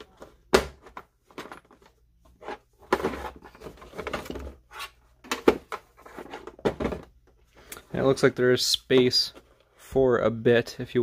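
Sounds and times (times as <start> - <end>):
hard plastic knocks and rattles: 5.2 - 7.1.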